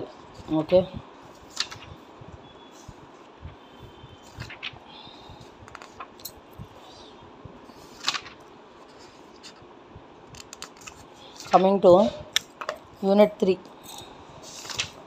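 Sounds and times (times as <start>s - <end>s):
paper pages rustling: 0.3s - 2.0s, 4.2s - 4.8s, 5.4s - 6.3s, 7.7s - 9.6s, 10.3s - 11.8s, 14.4s - 15.0s.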